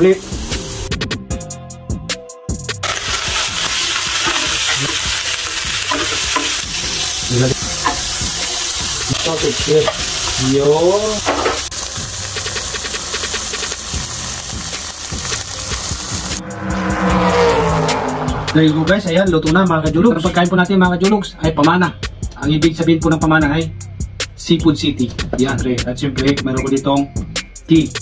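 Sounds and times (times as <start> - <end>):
meat sizzling on a grill: 0.0 - 0.9, 2.8 - 16.4.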